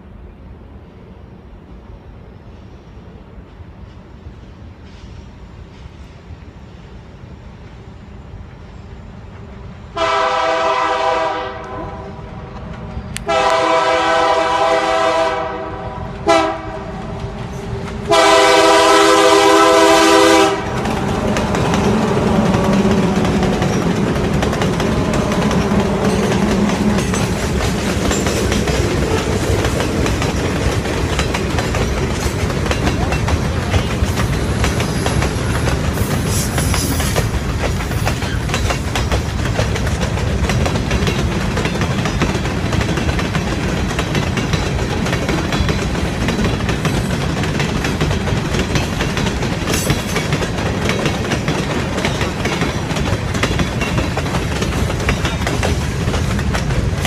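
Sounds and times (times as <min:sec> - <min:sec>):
train wheels clattering on rails: 0:09.3 - 0:57.0
locomotive air horn: 0:10.0 - 0:12.3, 0:13.2 - 0:20.8
locomotive engine passing: 0:10.0 - 0:57.0.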